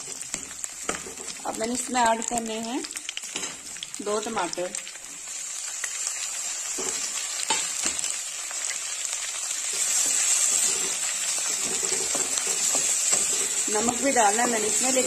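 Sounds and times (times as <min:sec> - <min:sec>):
vegetables sizzling in hot oil: 0:00.0 - 0:15.0
wooden spatula scraping pan: 0:09.7 - 0:15.0.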